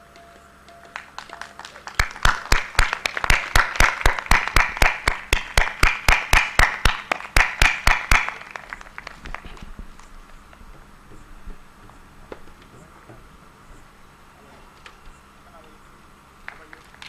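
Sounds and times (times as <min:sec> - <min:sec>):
audience rhythmic clapping: 0:00.6 - 0:09.8, 0:16.4 - 0:17.0.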